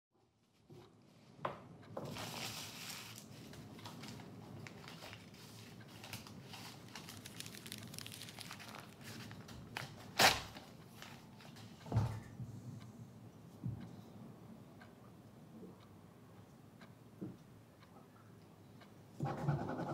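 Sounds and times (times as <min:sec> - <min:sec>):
paper rustling and crinkling: 0:02.1 - 0:11.5
notebook pages flipping: 0:04.9 - 0:10.4.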